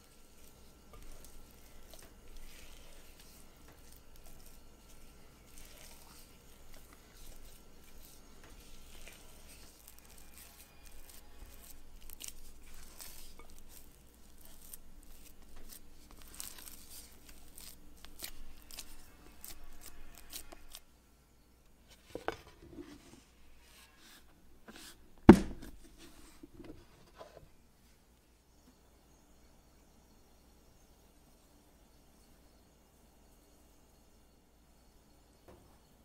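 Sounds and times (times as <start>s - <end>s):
spatula scraping dough in bowl: 0.0s - 20.8s.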